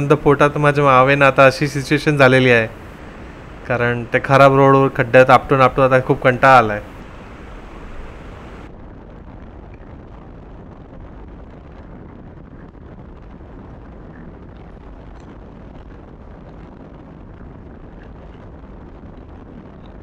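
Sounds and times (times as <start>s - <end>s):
wind rumble on microphone: 0.0s - 20.0s.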